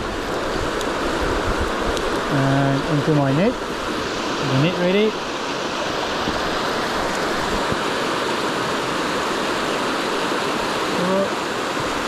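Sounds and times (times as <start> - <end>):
stream rushing over rocks: 0.0 - 12.0.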